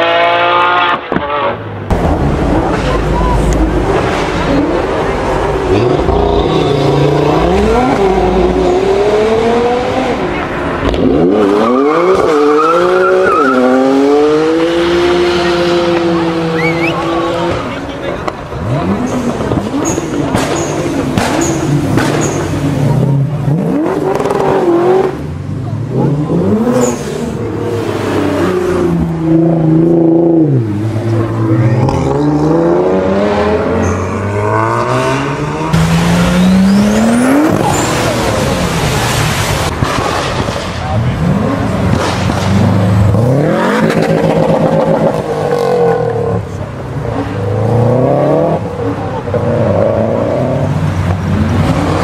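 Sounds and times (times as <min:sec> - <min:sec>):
car engine revving hard: 0:00.0 - 0:17.8, 0:18.6 - 0:25.2, 0:25.8 - 0:52.0.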